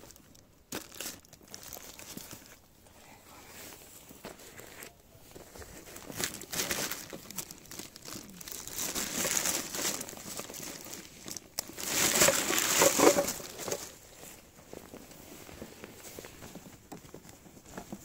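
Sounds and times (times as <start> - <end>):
plastic bag crinkling: 0.0 - 2.7, 4.4 - 15.6.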